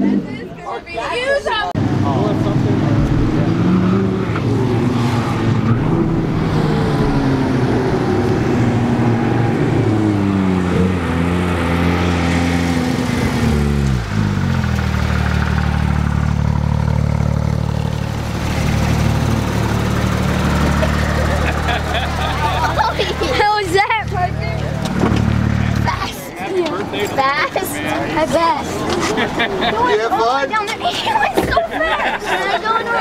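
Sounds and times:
car engine revving: 1.8s - 26.2s.

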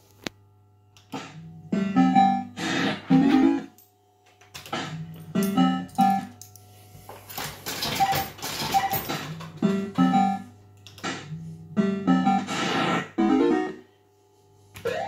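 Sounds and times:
low steady hum: 0.0s - 15.0s
fruit machine electronic tunes and bleeps: 9.6s - 10.5s, 11.2s - 12.6s.

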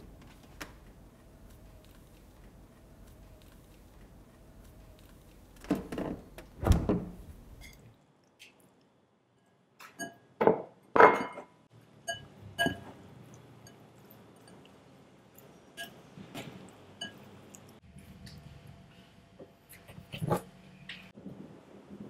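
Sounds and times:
spatula clinking against glass bowl: 12.1s - 12.9s.

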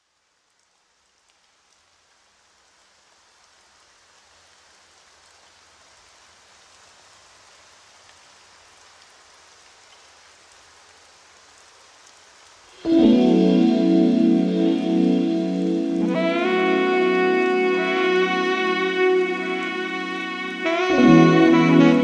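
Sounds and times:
steady rain: 0.0s - 22.0s
raindrop ticks: 0.5s - 2.3s.

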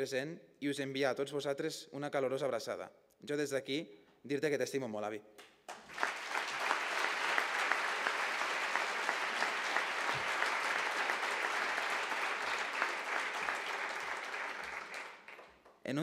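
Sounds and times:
audience applauding: 5.7s - 15.8s.

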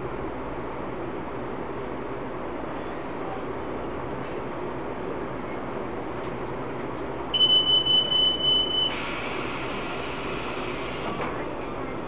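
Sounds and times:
hum of train equipment: 0.0s - 12.0s
high-pitched train door warning beep: 7.3s - 12.0s
hiss: 8.9s - 11.3s.

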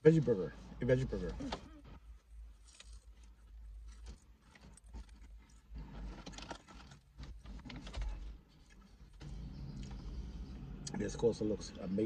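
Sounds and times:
person chewing: 2.5s - 5.6s.

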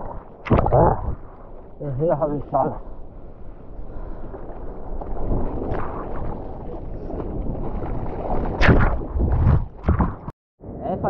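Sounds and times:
wind on microphone: 2.8s - 11.0s.

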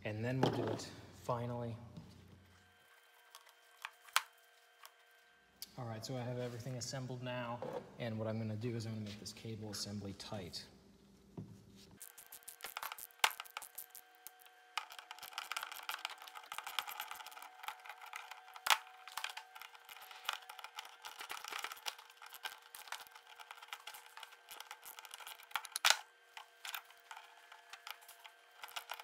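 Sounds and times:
socket ratchet clicking: 12.0s - 14.4s.

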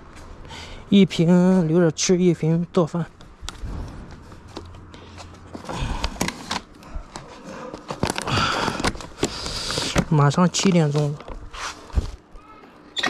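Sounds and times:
plastic and fabric rustling: 3.5s - 12.3s.

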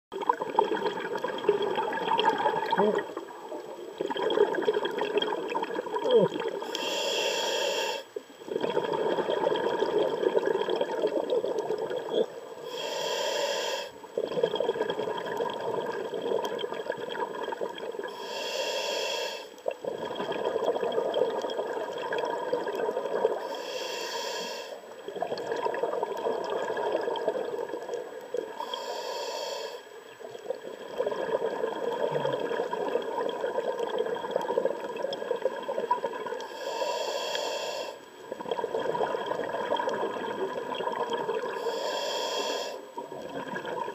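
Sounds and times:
exhaled bubbles rushing: 0.1s - 6.6s, 8.5s - 12.1s, 14.2s - 18.1s, 19.7s - 23.4s, 25.0s - 28.1s, 30.3s - 36.4s, 38.3s - 41.6s, 43.0s - 43.9s
regulator hissing inhalations: 6.6s - 8.1s, 12.6s - 14.0s, 18.1s - 19.6s, 23.4s - 24.8s, 28.6s - 29.9s, 36.4s - 38.0s, 41.6s - 42.9s.

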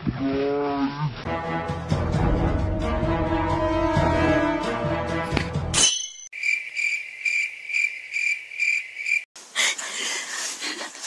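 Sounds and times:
cricket chirping: 6.3s - 9.3s.

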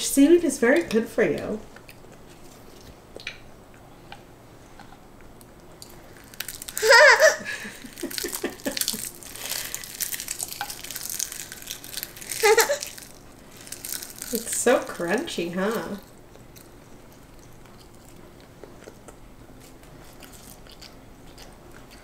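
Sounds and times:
seaweed snack crinkling and crunching: 5.8s - 22.0s
toddler squealing: 6.8s - 7.4s, 12.4s - 12.9s.

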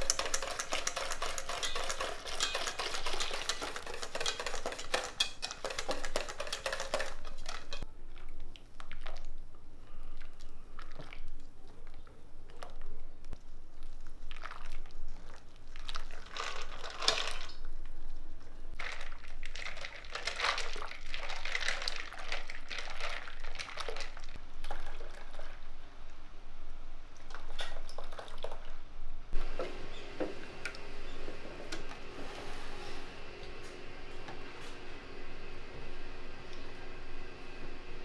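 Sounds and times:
spatula stirring custard in bowl: 0.0s - 7.9s.

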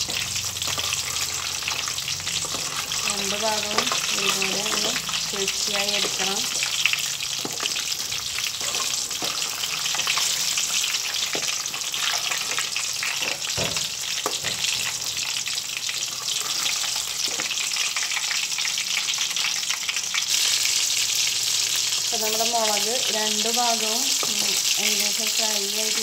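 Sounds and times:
utensils tapping and scraping pan: 0.0s - 15.0s, 16.1s - 17.6s, 24.1s - 24.6s
food sizzling in hot oil: 0.0s - 26.0s.

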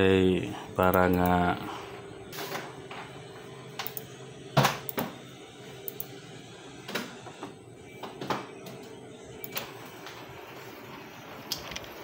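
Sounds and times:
steady low hum: 0.0s - 12.0s
computer mouse clicks: 3.8s - 4.1s, 5.8s - 6.1s.

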